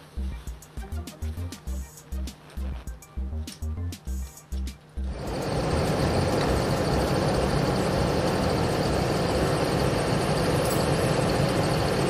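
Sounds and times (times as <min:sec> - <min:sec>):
portable generator running: 0:05.0 - 0:12.0.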